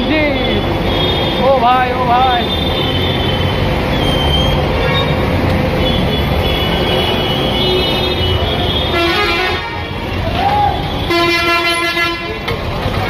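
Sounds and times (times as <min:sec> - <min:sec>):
traffic engines and tyres: 0:00.0 - 0:13.0
vehicle horns: 0:00.4 - 0:01.6, 0:02.2 - 0:13.0.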